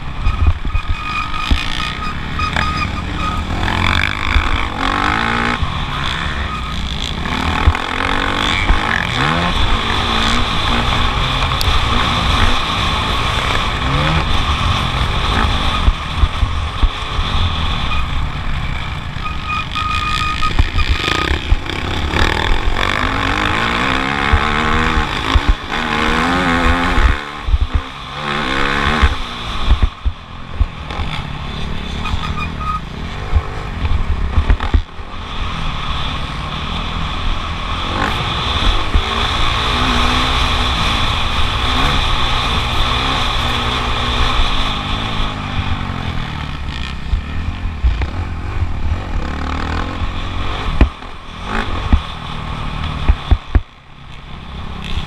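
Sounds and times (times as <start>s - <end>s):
motocross bike engine revving: 0.0s - 55.0s
wind rumble on microphone: 7.1s - 19.1s.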